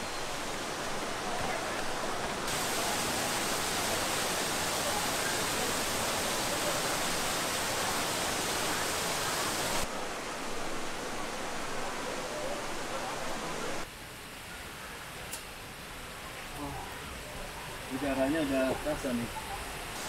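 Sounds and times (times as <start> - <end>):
waterfall rushing: 0.0 - 13.9.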